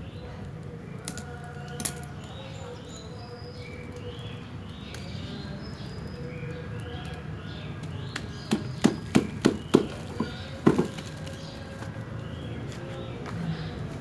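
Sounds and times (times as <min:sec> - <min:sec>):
birds chirping: 0:00.0 - 0:14.0
knocks handling root ball: 0:07.8 - 0:12.1.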